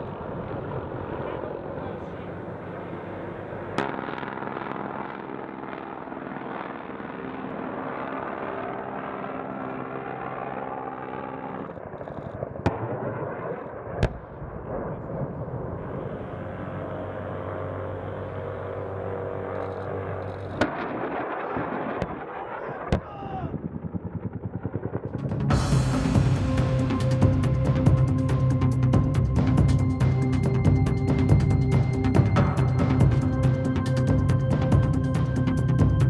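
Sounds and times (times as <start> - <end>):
helicopter drone: 0.0 - 12.6, 13.6 - 22.8, 23.8 - 36.0.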